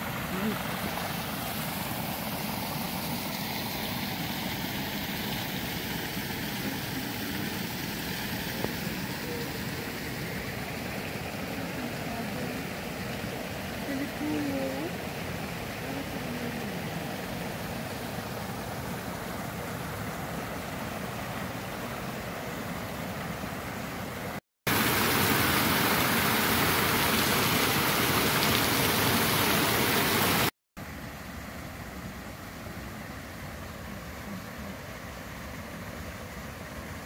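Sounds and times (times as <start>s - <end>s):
water pouring and splashing: 0.0s - 16.5s, 24.7s - 30.5s
quiet steady rushing noise: 0.0s - 37.0s.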